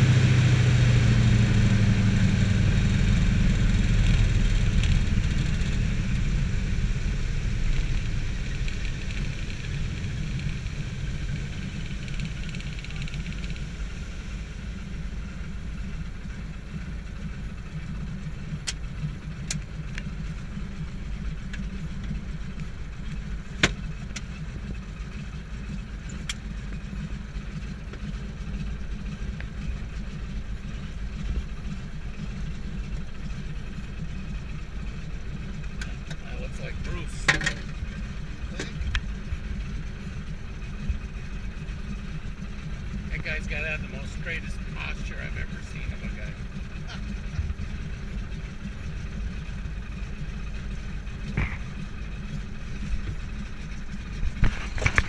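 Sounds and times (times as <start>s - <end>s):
radial aircraft engine idling: 0.0s - 55.0s.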